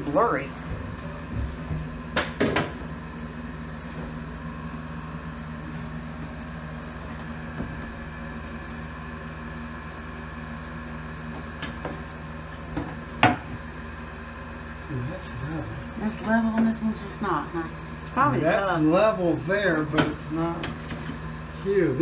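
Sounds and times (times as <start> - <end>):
low machine hum: 0.0 - 22.0.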